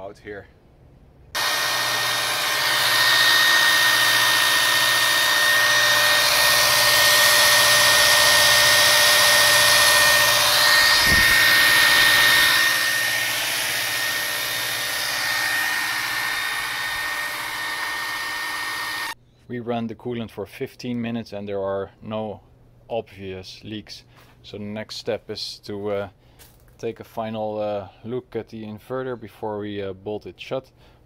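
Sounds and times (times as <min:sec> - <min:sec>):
electric drill motor whine: 0:01.4 - 0:19.2
pump rushing noise: 0:01.4 - 0:19.2.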